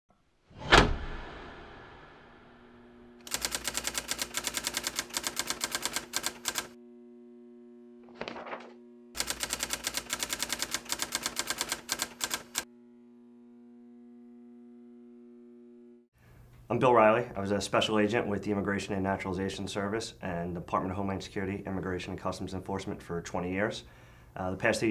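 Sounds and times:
brief swish: 0.5 - 2.8
typewriter keystroke clacks: 3.3 - 6.8, 9.2 - 12.6.

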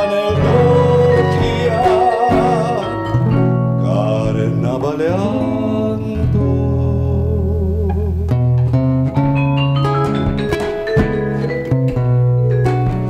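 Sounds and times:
held note with vibrato: 0.0 - 4.9
acoustic guitar plucking melody: 0.0 - 13.0
double bass: 0.0 - 13.0.

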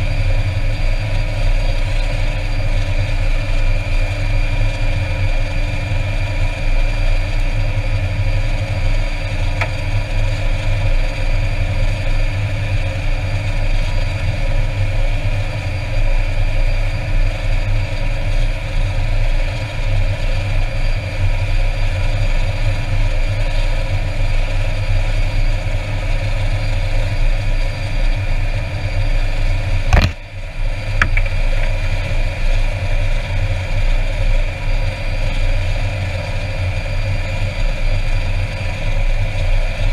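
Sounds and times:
turbine whine: 0.0 - 39.9
turboprop engine drone: 0.0 - 39.9
sharp click: 29.9 - 30.2.

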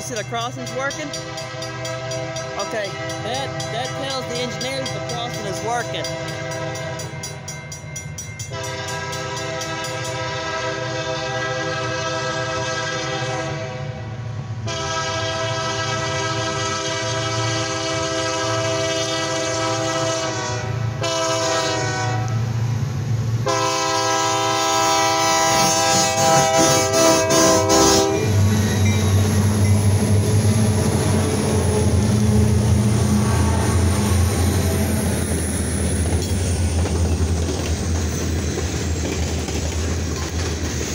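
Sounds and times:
locomotive engines rumbling: 0.0 - 40.9
locomotive air horn blasts: 1.1 - 4.0, 8.5 - 14.0, 14.6 - 22.4, 23.4 - 29.4.

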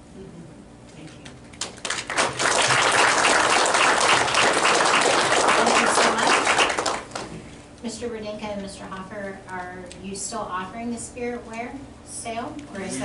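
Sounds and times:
audience applauding: 1.6 - 7.3.

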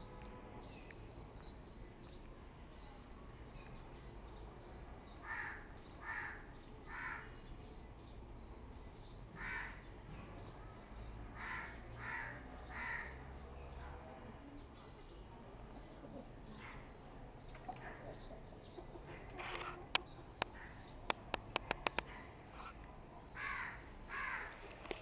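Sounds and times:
small birds chirping: 0.0 - 25.0
crow cawing: 5.2 - 7.3, 9.4 - 9.8, 11.4 - 13.2, 23.4 - 24.6.

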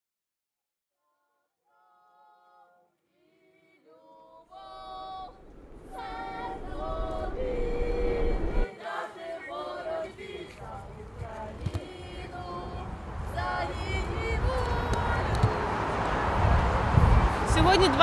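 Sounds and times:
choir singing held notes: 3.2 - 17.3
low rumble: 4.7 - 8.7.

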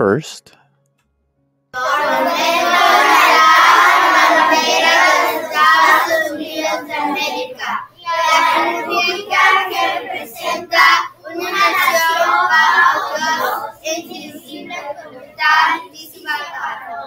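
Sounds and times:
children reciting in unison: 1.8 - 17.0.

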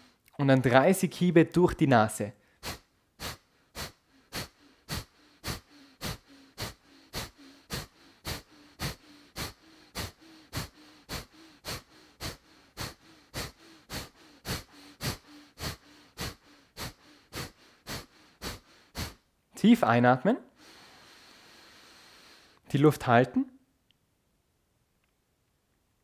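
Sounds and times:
sharp nasal exhalations: 0.0 - 0.3, 2.4 - 19.3, 20.5 - 22.7.

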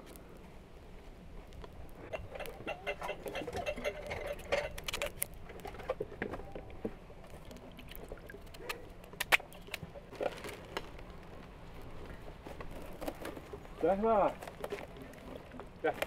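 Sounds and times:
light water splashes: 2.3 - 11.0.

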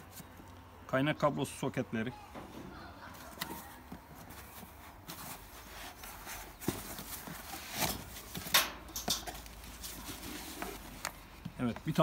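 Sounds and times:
cardboard box being handled: 3.2 - 8.5, 9.4 - 12.0
packing sheet rustling: 9.4 - 11.1.

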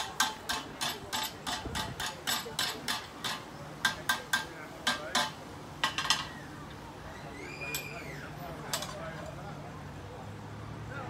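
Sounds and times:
hammer striking metal on anvil: 0.0 - 5.4.

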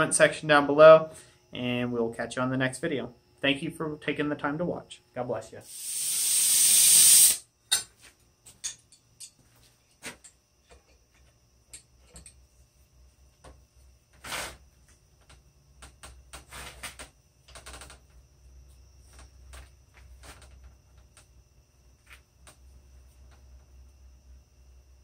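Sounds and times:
loud rising hiss: 5.6 - 7.4.

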